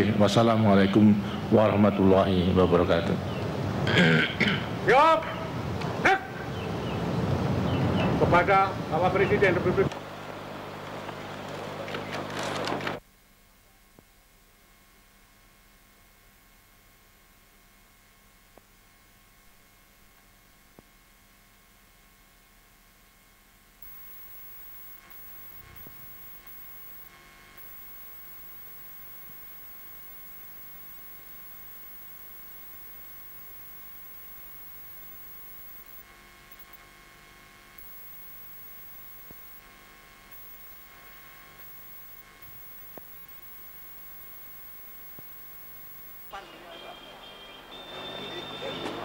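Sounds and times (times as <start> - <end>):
electrical hum and hiss: 0.0 - 46.7
faint clicks: 23.8 - 36.9, 37.8 - 46.3
thin high steady tones: 23.8 - 46.4.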